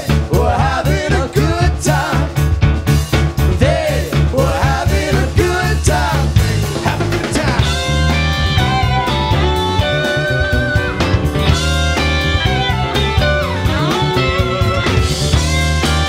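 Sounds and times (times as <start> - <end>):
two voices singing: 0.0 - 2.5, 3.5 - 8.0
live rock band playing: 0.0 - 16.0
held guitar notes: 7.0 - 16.0.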